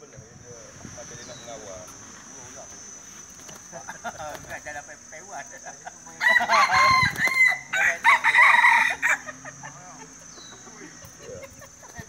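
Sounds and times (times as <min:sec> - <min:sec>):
rooster crowing: 0:06.1 - 0:09.8.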